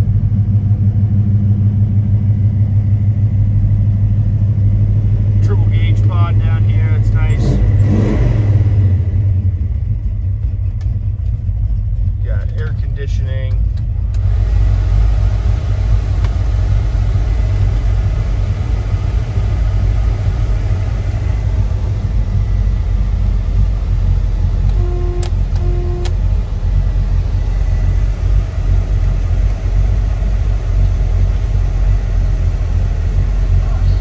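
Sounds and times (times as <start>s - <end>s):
car engine idling: 0.0s - 34.0s
short beeps: 24.7s - 26.2s.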